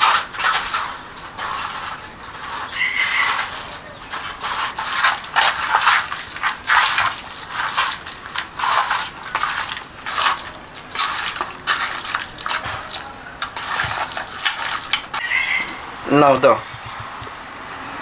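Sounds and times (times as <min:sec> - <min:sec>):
hand squelching raw meat: 0:00.0 - 0:15.5.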